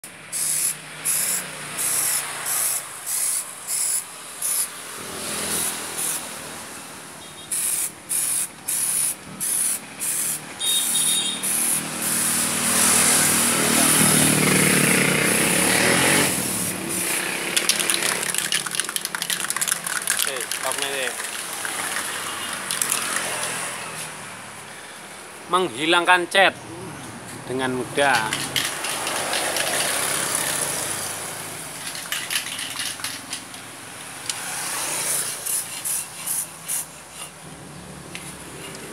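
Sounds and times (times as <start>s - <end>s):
aerosol spray can hissing: 0.3s - 4.8s, 5.4s - 6.3s, 7.5s - 13.6s, 16.3s - 23.6s, 28.6s - 30.9s, 34.4s - 37.3s.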